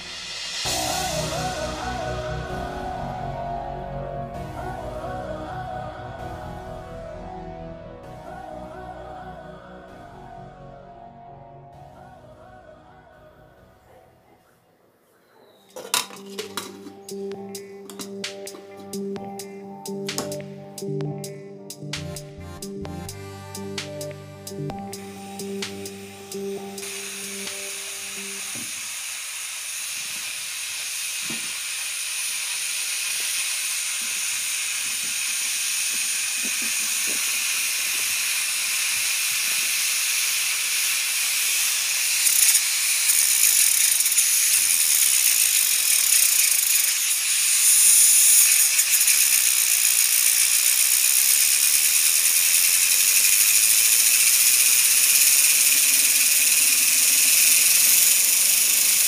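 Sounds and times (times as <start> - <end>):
steam hissing: 0.0 - 3.6, 23.4 - 59.0.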